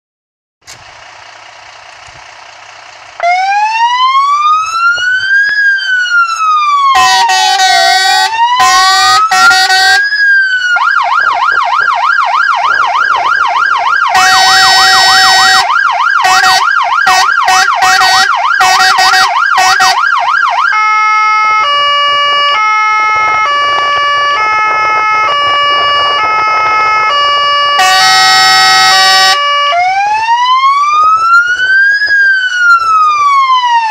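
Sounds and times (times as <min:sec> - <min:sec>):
fire engine siren: 0:00.7 - 0:33.9
loud horn blasts: 0:06.9 - 0:10.1, 0:14.0 - 0:20.1, 0:21.4 - 0:29.9.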